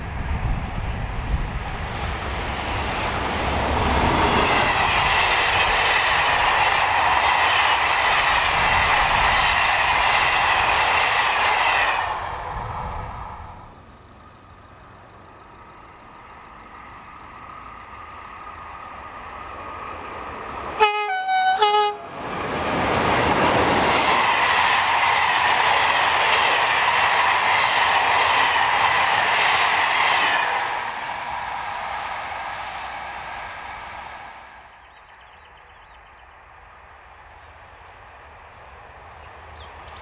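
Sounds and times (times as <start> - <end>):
train passing with rushing wheels: 0.0 - 40.0
train horn blasts: 20.8 - 22.2.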